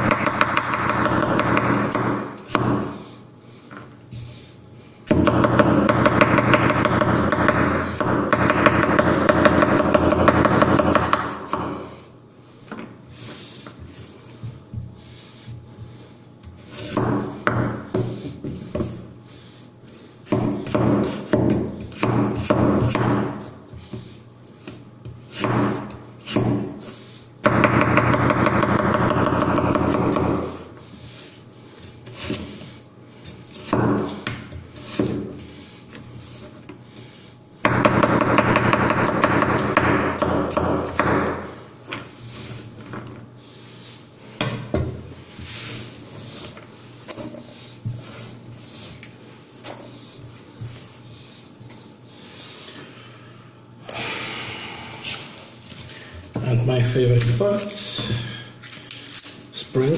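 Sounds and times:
knife chopping on wooden board: 0.0s - 2.9s, 16.9s - 18.9s, 20.3s - 24.1s, 25.0s - 26.7s, 33.6s - 35.4s, 37.6s - 41.5s.

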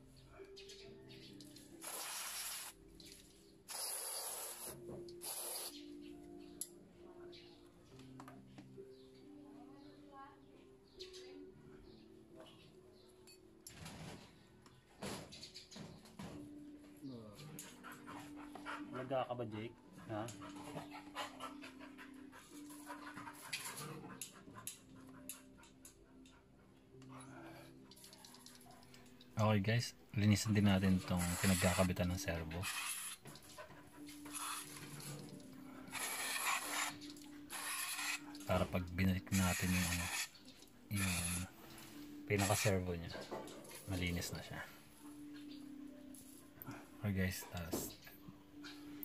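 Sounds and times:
aerosol spray hissing: 1.8s - 2.8s, 3.7s - 5.7s, 31.2s - 31.9s
dog panting: 17.5s - 27.8s, 33.2s - 36.7s.

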